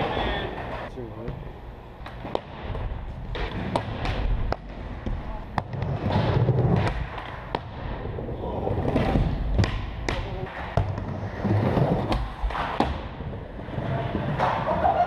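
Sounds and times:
skateboard wheels rolling: 2.2 - 9.7, 10.3 - 15.0
skateboards clacking: 8.8 - 15.0.

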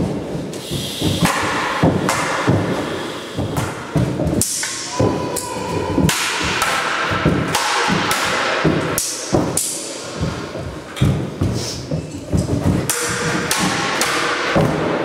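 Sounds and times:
swords striking shields: 4.4 - 10.5, 12.7 - 15.0
footsteps on wooden floor: 10.2 - 12.9.

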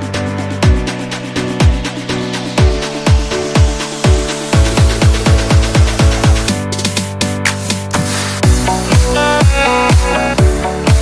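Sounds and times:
electronic dance music: 0.0 - 11.0
held synth chords: 0.0 - 11.0.

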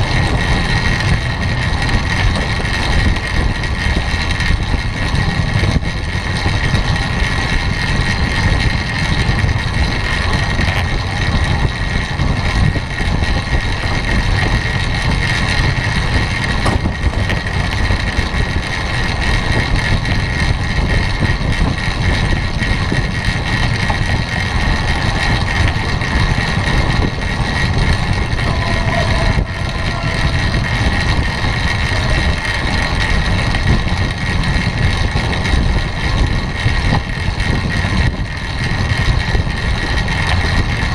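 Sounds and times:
bicycle tyres on wooden boards: 0.0 - 40.9
wind rush on microphone: 0.0 - 40.9
faint high hum: 28.1 - 32.8.

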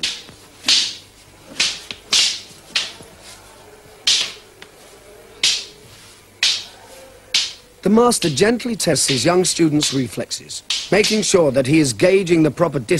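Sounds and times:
stick swishing through air: 0.0 - 7.6.

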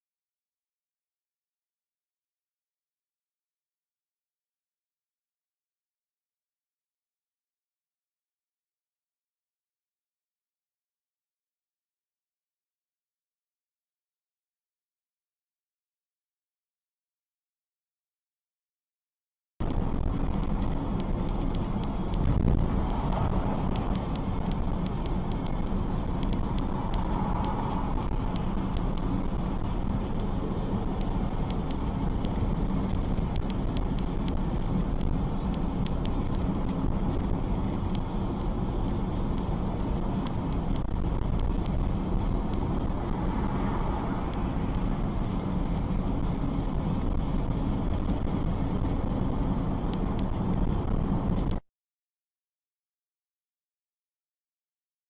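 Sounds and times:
car driving road rumble: 19.6 - 51.6
wind noise on microphone: 19.6 - 51.6.

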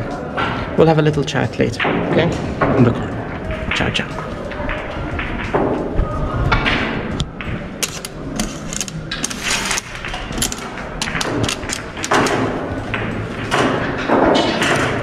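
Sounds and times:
score markers clicking: 7.8 - 12.4
scraping rustles: 7.8 - 12.5.

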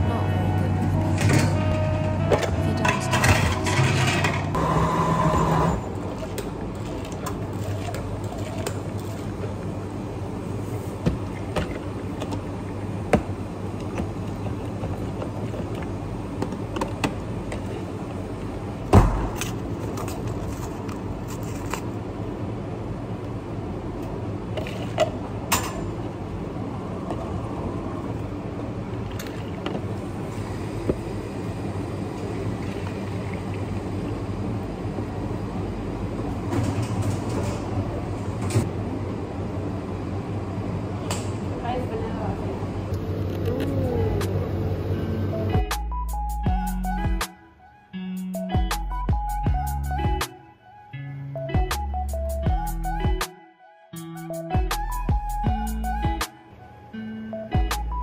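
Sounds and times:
coffee machine hum: 0.0 - 41.6, 42.4 - 45.6.

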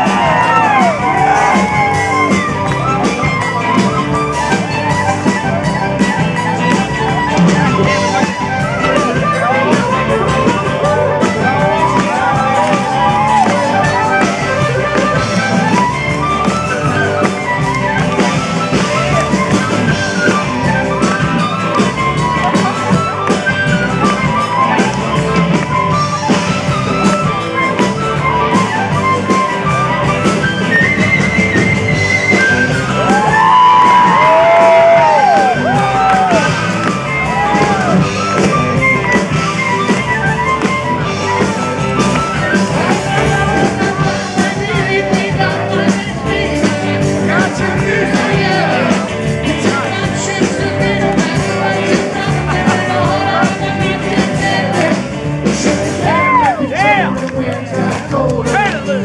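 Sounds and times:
blues harmonica solo: 0.0 - 45.9
rock band playing: 0.0 - 59.0.

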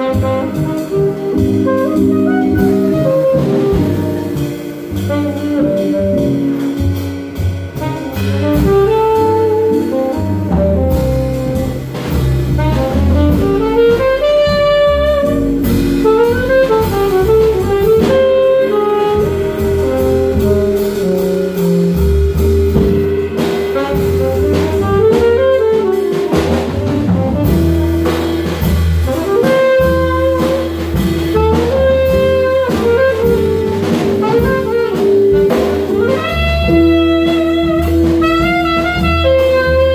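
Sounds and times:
drum kit: 0.0 - 39.9
saxophone lead line: 0.0 - 39.9
upright bass: 0.0 - 39.9.

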